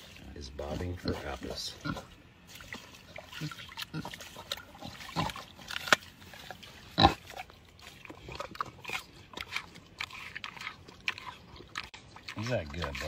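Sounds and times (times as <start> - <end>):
pig chewing and snuffling in water: 0.0 - 13.0.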